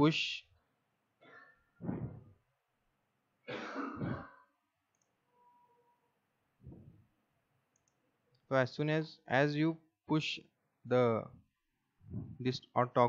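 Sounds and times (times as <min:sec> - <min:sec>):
man clearing his throat: 0:03.5 - 0:04.5.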